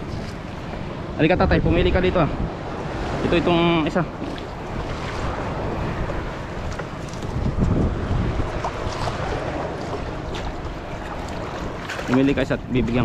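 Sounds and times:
wind buffeting microphone: 0.0s - 13.0s
water splashing against boat hull: 4.0s - 13.0s.

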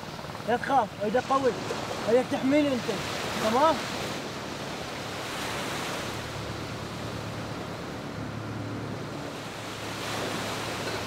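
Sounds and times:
sea waves washing on shore: 0.0s - 11.0s.

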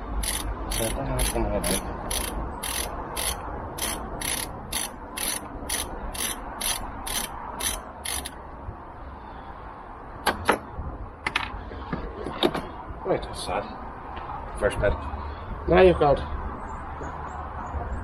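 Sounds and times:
socket ratchet clicking: 0.2s - 8.4s.

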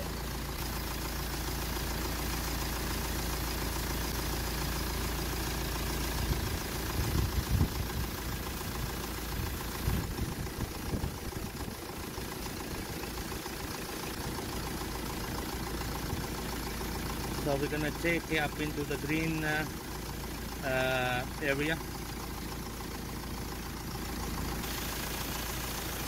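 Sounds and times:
car engine idling: 0.0s - 26.0s
low bumps and rumbles: 6.2s - 8.2s, 9.4s - 11.8s.

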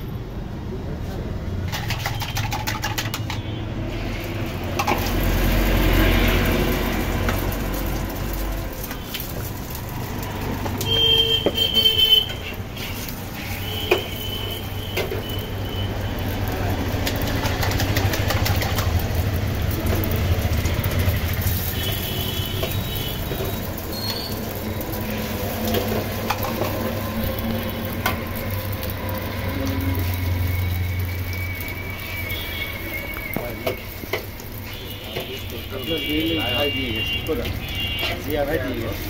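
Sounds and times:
eggs frying on griddle: 1.5s - 39.0s
spatula scraping on griddle: 11.5s - 15.4s, 20.6s - 28.8s.

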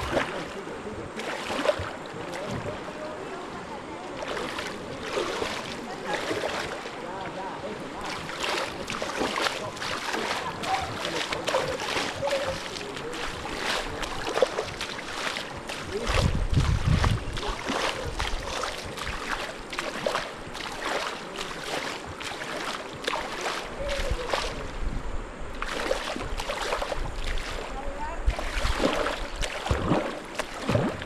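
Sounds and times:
river water rushing and splashing: 0.0s - 31.0s
wind gusts on microphone: 15.4s - 20.6s, 23.4s - 31.0s.

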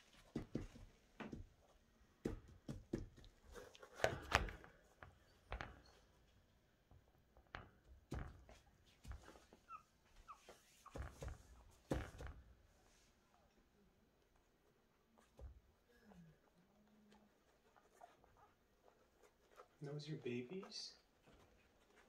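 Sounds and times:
soft knocks and rustles: 0.0s - 13.2s.

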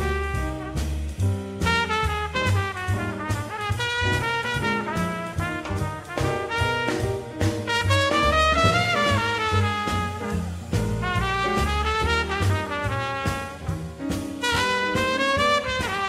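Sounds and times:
drums keeping time: 0.0s - 16.0s
jazz trumpet soloing: 0.0s - 16.0s
walking bass: 0.0s - 16.0s.

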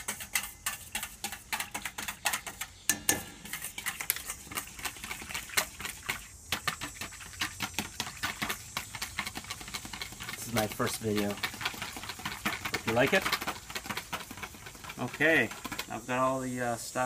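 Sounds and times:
whisk clinking in metal bowl: 0.0s - 7.4s.

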